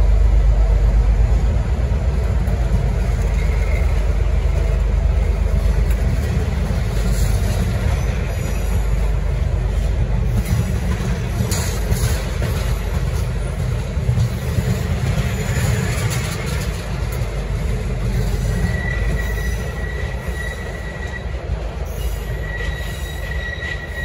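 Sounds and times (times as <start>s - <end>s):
train carriages rumbling past: 0.0s - 24.0s
high wheel squeal: 6.9s - 9.2s, 18.1s - 24.0s.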